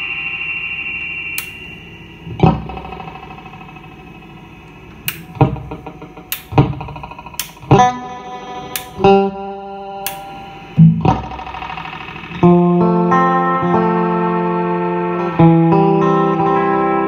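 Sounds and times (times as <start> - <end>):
electric guitar notes with echo: 2.2 - 4.0, 5.2 - 17.0.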